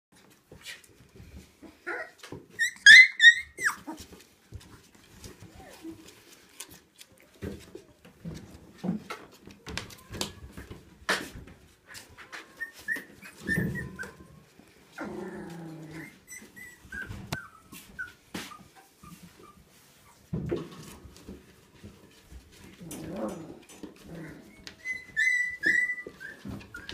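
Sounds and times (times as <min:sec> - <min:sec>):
puppies growling and squeaking: 0:01.6 - 0:04.3, 0:11.9 - 0:21.3, 0:22.5 - 0:26.9
puppy crying: 0:01.8 - 0:04.0, 0:12.5 - 0:19.6, 0:24.4 - 0:26.9.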